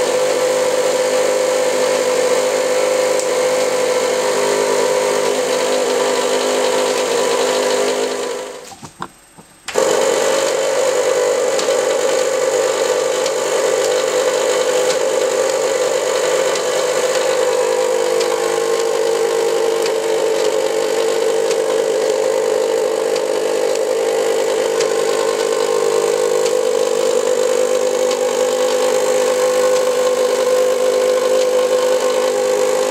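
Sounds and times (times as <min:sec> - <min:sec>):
small electric motor humming: 0:09.7 - 0:32.9.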